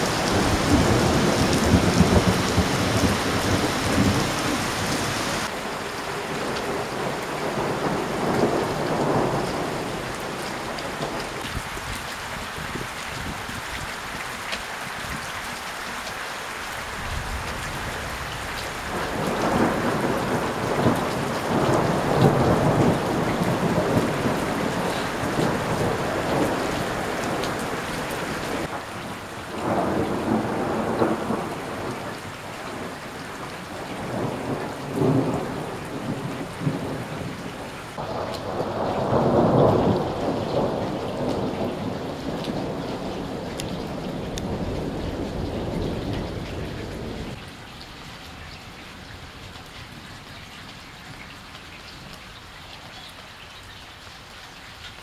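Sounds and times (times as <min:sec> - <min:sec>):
rolling thunder: 0:00.0 - 0:05.5, 0:17.0 - 0:33.0, 0:33.6 - 0:47.4
steady rain falling: 0:00.0 - 0:55.0.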